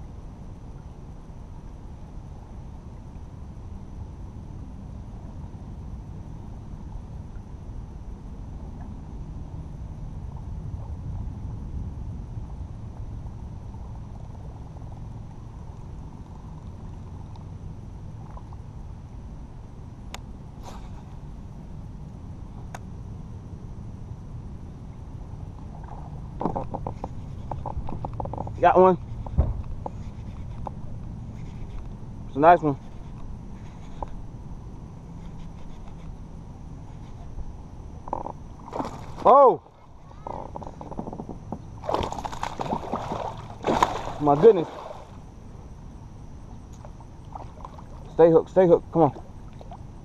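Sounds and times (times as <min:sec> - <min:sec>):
low rumble: 0:00.0 - 0:35.2
faint high-pitched whine: 0:00.0 - 0:50.0.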